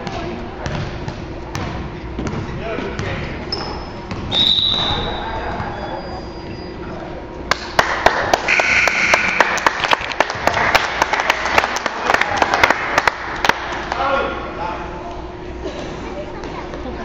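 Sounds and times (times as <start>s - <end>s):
crowd noise: 0.0s - 17.0s
spectators clapping: 7.5s - 14.0s.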